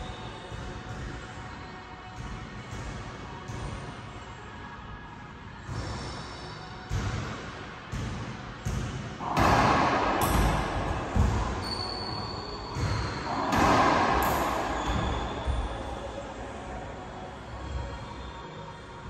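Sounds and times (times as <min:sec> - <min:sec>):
ball bouncing off walls: 0:06.9 - 0:15.9
racquetball hits echoing: 0:06.9 - 0:16.5.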